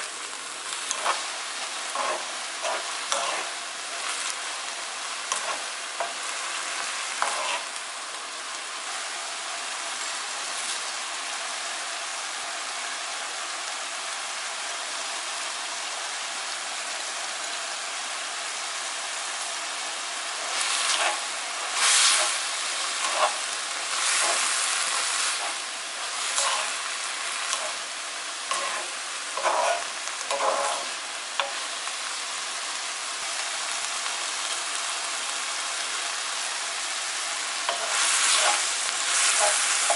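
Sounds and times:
chillies and onion sizzling in pan: 0.0s - 39.9s
wooden spatula scraping pan: 0.9s - 4.3s, 5.3s - 6.2s, 7.2s - 7.7s, 20.6s - 27.8s, 28.5s - 31.6s, 37.7s - 39.9s.

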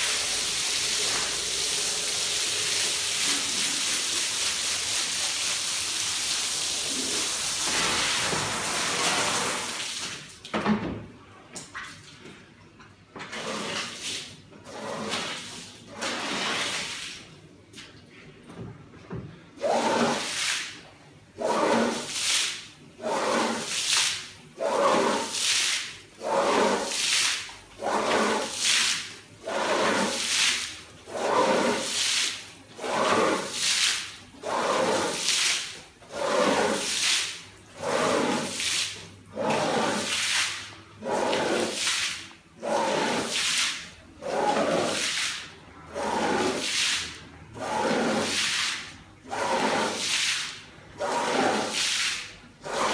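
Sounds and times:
scrubbing brush swishing through water: 13.3s - 17.3s, 19.6s - 52.9s.

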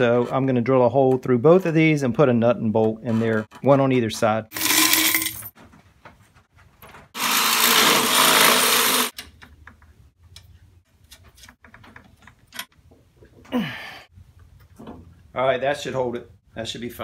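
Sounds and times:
electric drill drilling metal tubes: 7.2s - 9.1s.

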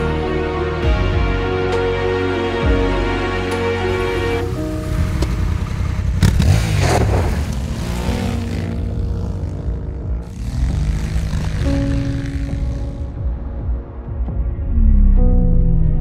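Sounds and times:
dirt spraying from tyres: 4.8s - 8.6s
motorcycle engine revving: 4.8s - 13.2s.

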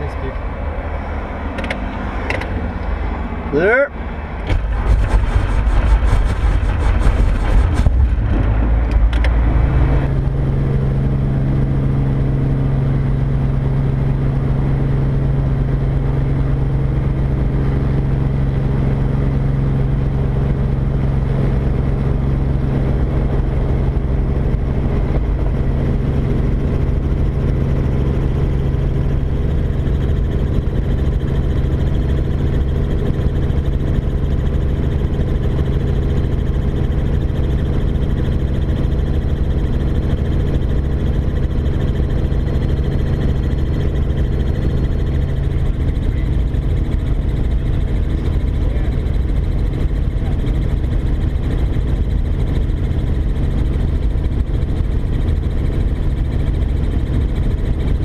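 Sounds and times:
helicopter engine and rotor drone: 0.0s - 58.0s
buffeting and clatter: 4.3s - 11.9s, 21.5s - 58.0s.

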